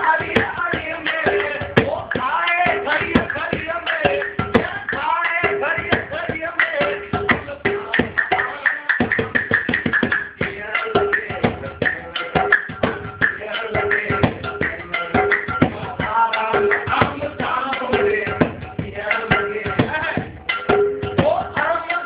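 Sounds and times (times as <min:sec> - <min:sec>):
men singing: 0:00.0 - 0:22.0
metal pot hand drum: 0:00.0 - 0:22.0.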